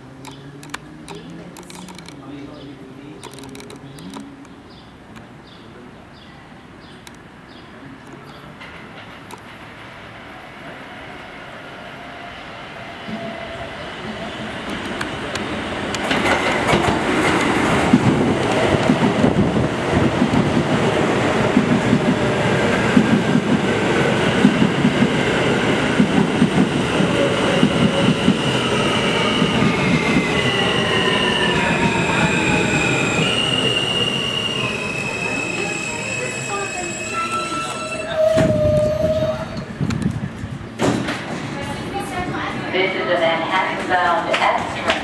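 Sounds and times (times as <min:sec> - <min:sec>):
train wheels clattering over rails: 0:14.6 - 0:33.6.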